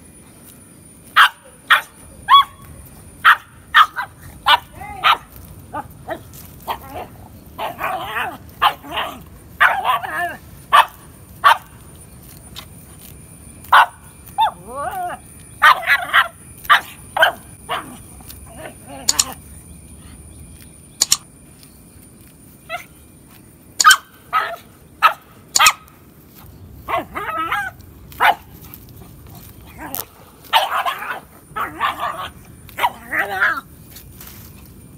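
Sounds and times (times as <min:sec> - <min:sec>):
dog barking and yipping: 0:01.2 - 0:02.6, 0:03.2 - 0:11.8, 0:13.7 - 0:19.4, 0:23.8 - 0:25.9, 0:26.9 - 0:33.6.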